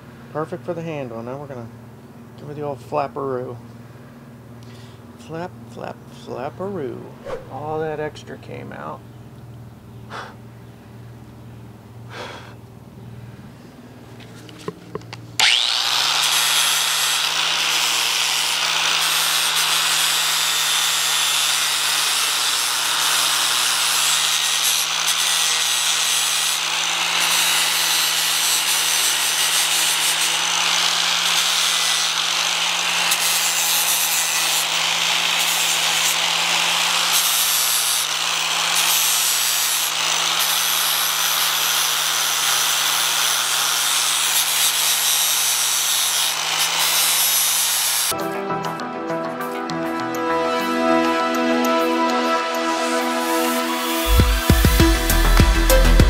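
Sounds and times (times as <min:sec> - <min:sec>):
angle grinder grinding metal: 0:15.4 - 0:48.2, 0:49.9 - 0:56.0.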